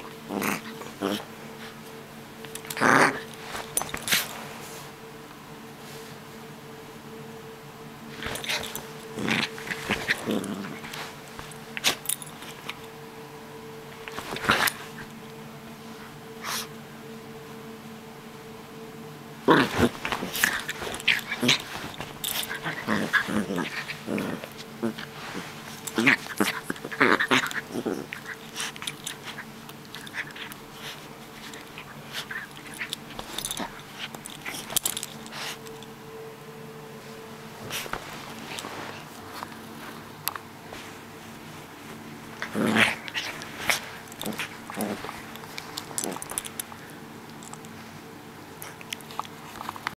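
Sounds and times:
dog play-growling: 0.0s - 4.8s, 8.0s - 13.0s, 13.9s - 16.7s, 19.4s - 35.9s, 37.5s - 47.8s, 48.5s - 49.9s
rustling of fur and fabric: 0.0s - 6.5s, 8.0s - 16.7s, 19.6s - 36.0s, 36.8s - 49.9s
scuffling on blanket: 3.2s - 5.0s, 8.1s - 12.0s, 19.6s - 26.8s, 36.9s - 45.8s
dog snapping and mouthing: 8.2s - 12.8s, 14.0s - 15.1s, 19.6s - 25.1s, 42.4s - 46.7s.

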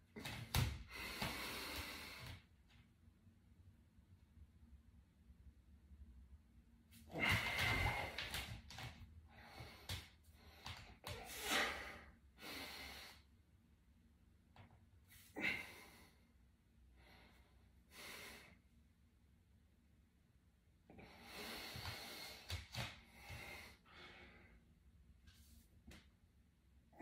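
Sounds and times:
man breathing forcefully: 0.2s - 2.4s, 7.0s - 8.6s, 9.3s - 13.3s, 21.0s - 24.6s.

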